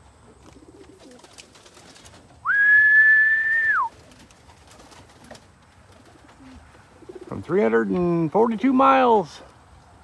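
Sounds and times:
long whistle: 2.4 - 3.9.

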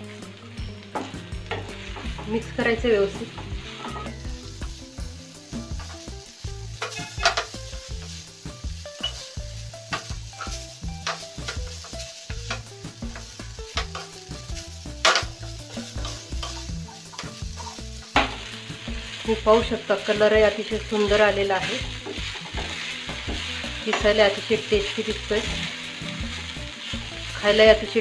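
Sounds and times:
fried rice sizzling in pan: 0.0 - 28.0
spatula scraping and tapping pan: 0.7 - 19.3, 19.9 - 28.0.

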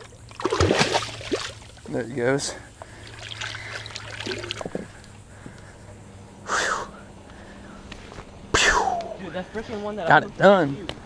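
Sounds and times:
water splashing and trickling: 0.0 - 5.2.

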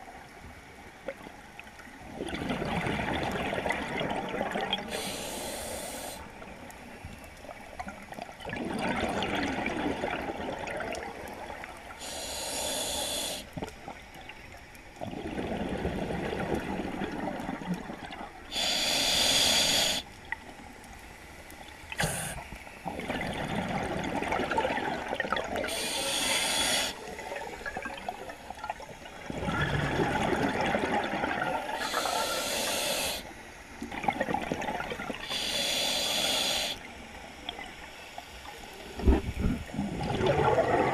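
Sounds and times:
exhaled air bubbling: 1.0 - 6.7, 7.3 - 20.5, 21.9 - 33.2, 33.8 - 36.9, 38.7 - 40.9
regulator inhale hiss: 4.8 - 6.4, 11.8 - 13.6, 18.5 - 20.2, 21.9 - 22.8, 25.6 - 27.4, 31.7 - 33.8, 35.2 - 37.1.

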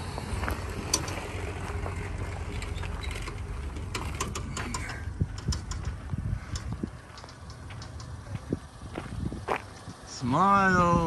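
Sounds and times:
footsteps on gravel: 0.0 - 0.8, 5.8 - 10.1
low steady rumble: 0.0 - 11.0.

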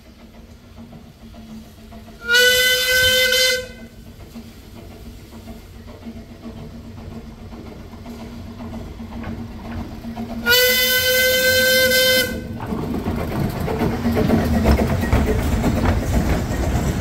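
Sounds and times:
faint approaching train: 0.0 - 17.0
steam whistle blast: 2.2 - 3.9, 10.4 - 12.5.

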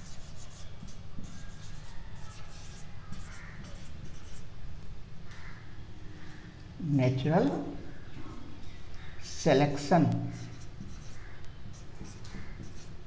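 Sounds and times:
marker scratching on whiteboard: 0.0 - 4.5, 10.2 - 13.0.

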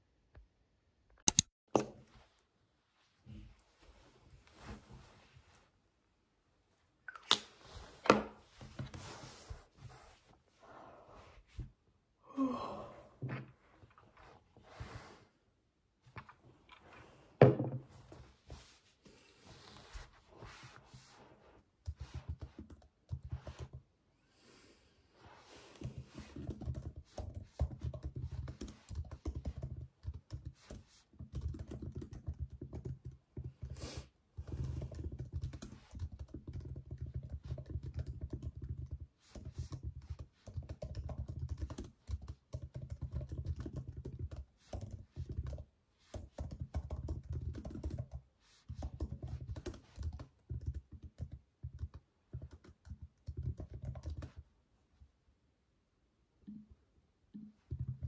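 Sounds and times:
fast typing on laptop keyboard: 21.9 - 23.8, 25.8 - 33.8, 34.4 - 54.4.

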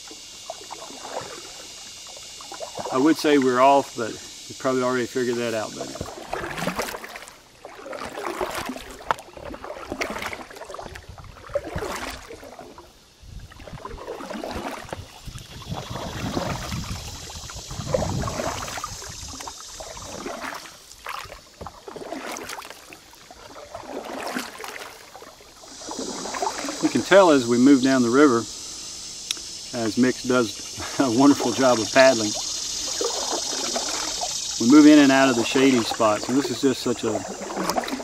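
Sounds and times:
paddles pulling through water: 0.0 - 38.0
water dripping: 5.7 - 12.8, 13.6 - 27.2, 29.2 - 38.0.

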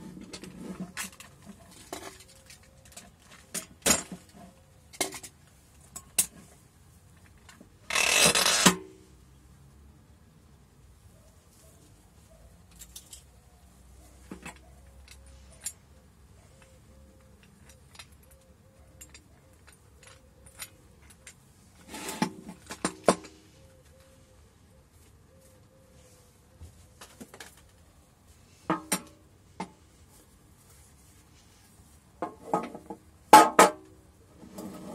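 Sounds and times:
light metal clicks and clinks: 12.6 - 13.4, 14.1 - 21.5.

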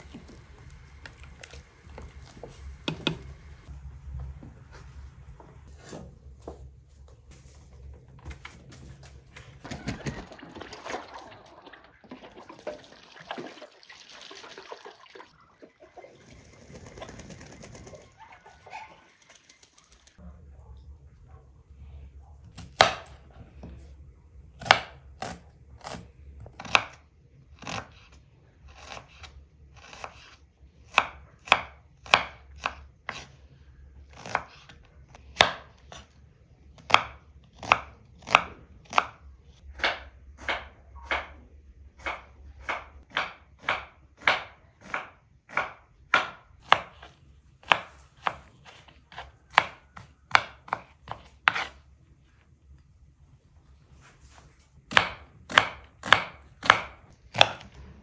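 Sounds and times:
knife chopping on wooden board: 36.8 - 41.4, 42.0 - 51.8, 54.9 - 57.8.

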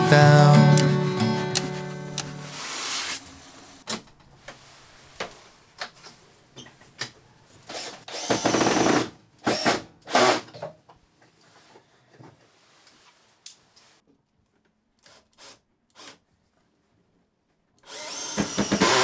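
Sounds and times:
power tool bursts: 7.8 - 10.5, 17.8 - 19.0.

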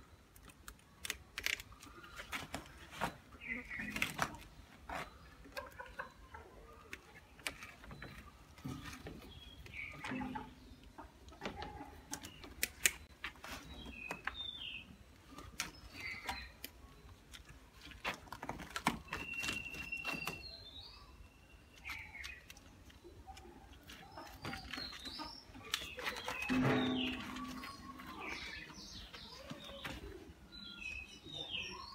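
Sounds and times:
pliers and wires clicking: 0.3 - 1.9.

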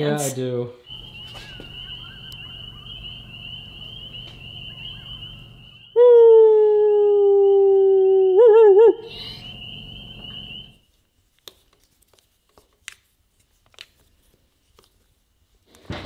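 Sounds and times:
night insects trilling: 0.8 - 6.0, 8.2 - 11.2
long howl: 5.9 - 9.1.

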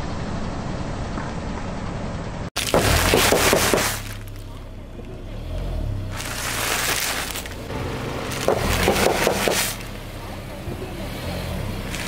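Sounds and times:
car engine humming: 1.8 - 12.0
tyre crushing snack chip bags: 2.6 - 4.5, 6.1 - 7.7, 8.3 - 9.9
tyre noise: 6.0 - 7.7.

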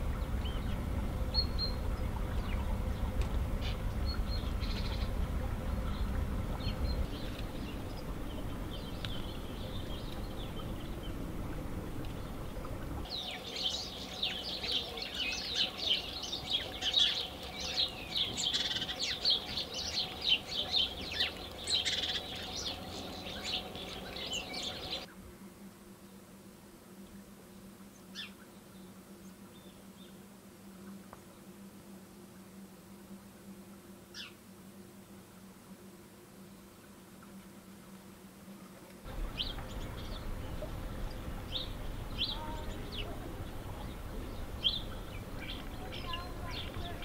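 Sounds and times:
low rumble: 0.0 - 13.1.

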